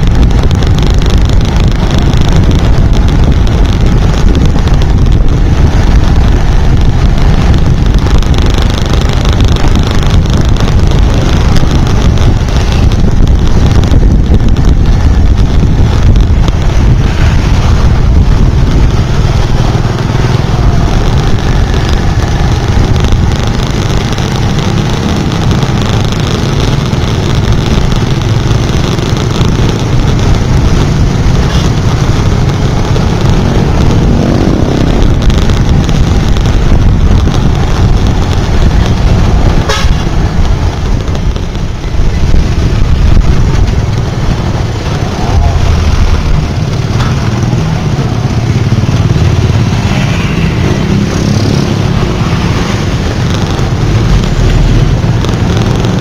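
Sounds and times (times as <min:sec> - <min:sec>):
motorbike engine and wind rumble: 0:00.0 - 0:56.0
vehicle horn toots: 0:39.6 - 0:40.0.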